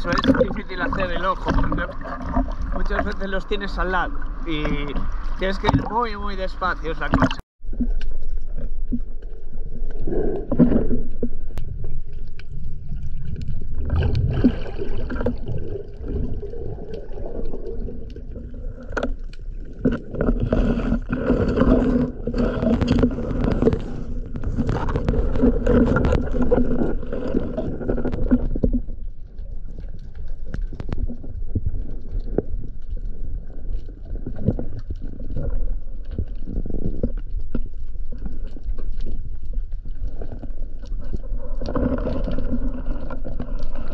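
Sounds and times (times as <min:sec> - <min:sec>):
muffled underwater rumble: 0:00.0 - 0:43.9.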